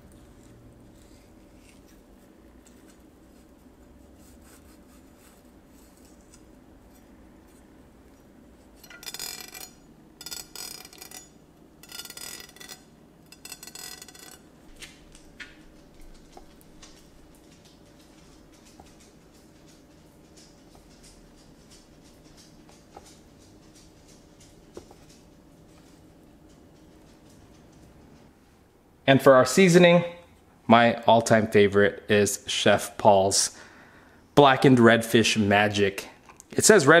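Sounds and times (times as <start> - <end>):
low steady hum: 0.0 - 37.0
metal scraping a hard surface: 8.8 - 14.5.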